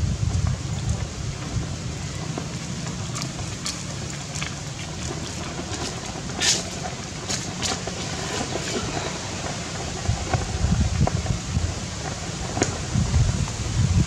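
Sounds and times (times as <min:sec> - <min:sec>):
outdoor background rumble and hiss: 0:00.0 - 0:14.0.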